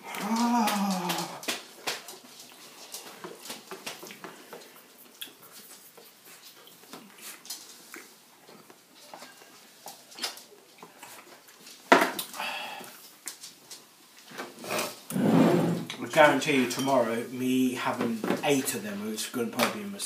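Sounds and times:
faint eating noises: 0.0s - 15.2s.

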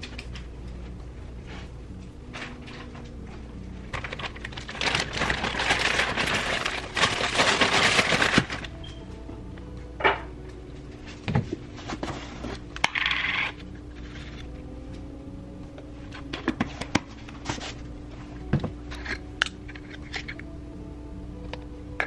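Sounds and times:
utensils and containers clinking: 3.9s - 9.0s, 18.6s - 20.4s.

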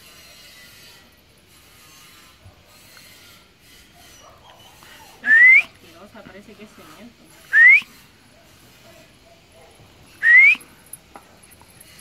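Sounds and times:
person whistling: 5.3s - 5.7s, 7.5s - 7.9s, 10.2s - 10.7s.

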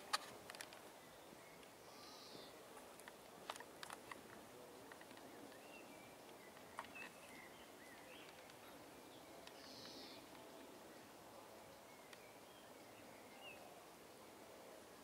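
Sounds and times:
distant bird chirps: 5.1s - 10.4s.

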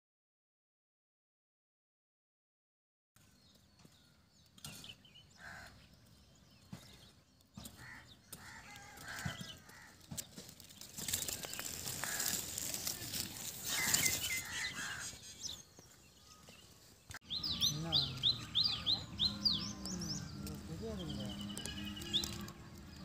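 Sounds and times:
bird chirps: 3.2s - 23.0s
leaves and twigs rustling: 7.8s - 17.1s, 20.3s - 23.0s.

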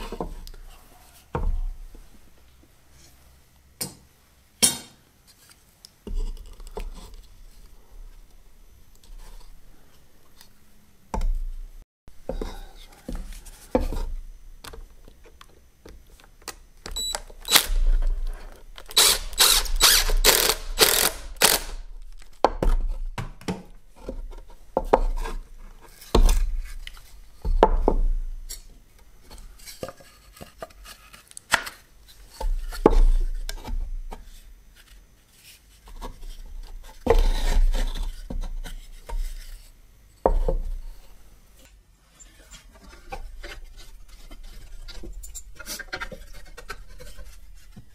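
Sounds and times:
scraping strokes on wood: 19.0s - 21.7s, 42.1s - 47.9s.

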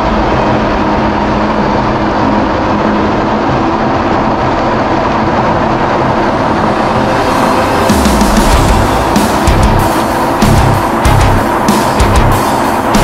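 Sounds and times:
jet ski engine drone: 0.0s - 13.0s
water rushing along hull: 0.0s - 13.0s.

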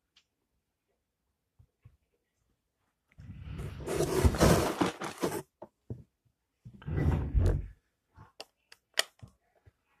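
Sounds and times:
plastic bricks rustling clatter: 3.8s - 5.5s.

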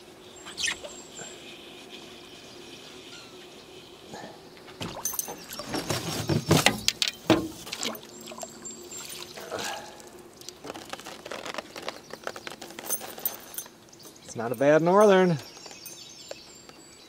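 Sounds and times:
water splashing and dripping: 6.6s - 9.3s.

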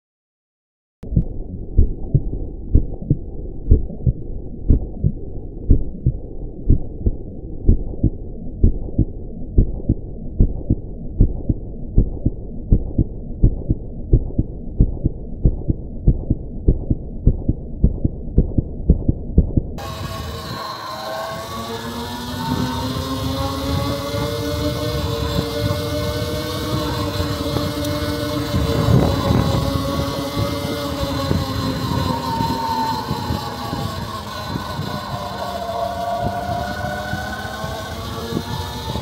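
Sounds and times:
muffled rhythmic low thumping: 1.0s - 19.8s
riding noise: 19.8s - 39.0s
wind: 19.8s - 39.0s.

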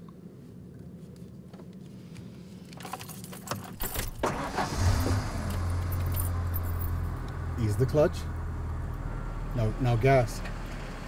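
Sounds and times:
keys jangling in ignition: 2.7s - 7.3s
truck engine starting and idling: 3.7s - 11.0s.

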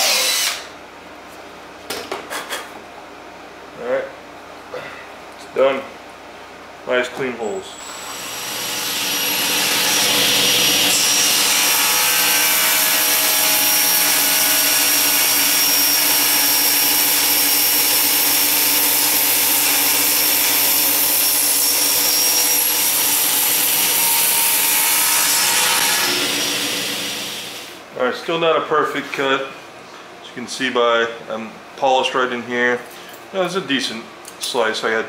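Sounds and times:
table saw cutting aluminum: 0.0s - 0.7s, 7.8s - 27.8s.

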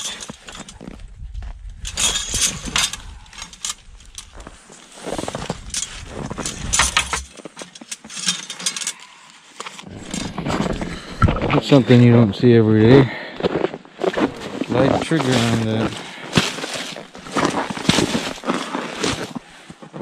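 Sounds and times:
sharp clicks and scrapes: 1.8s - 11.6s
snow crunching: 13.5s - 20.0s
spruce branches rustling: 14.0s - 19.4s.

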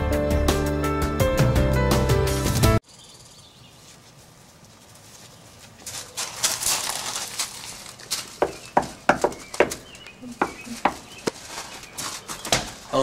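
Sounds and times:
rustling: 3.6s - 13.0s
knuckles knocking on a door: 8.4s - 9.8s, 10.4s - 11.0s.

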